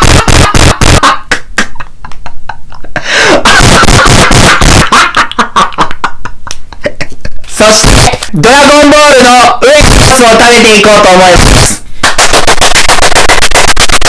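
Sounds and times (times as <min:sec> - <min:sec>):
rapid loud clicks and crackles: 0:00.0 - 0:01.1, 0:03.6 - 0:04.9, 0:09.8 - 0:14.0
man yelling and grunting distorted: 0:07.6 - 0:11.8.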